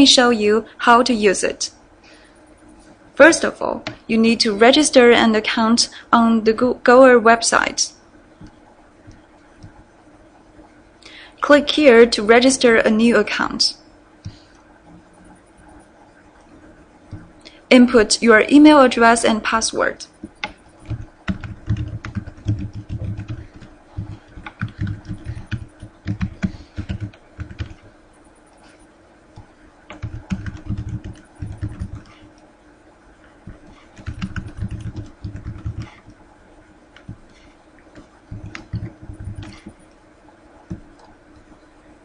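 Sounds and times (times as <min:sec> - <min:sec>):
computer keyboard typing: 0:20.0 - 0:32.4, 0:33.4 - 0:36.2, 0:37.0 - 0:40.0, 0:40.6 - 0:41.6.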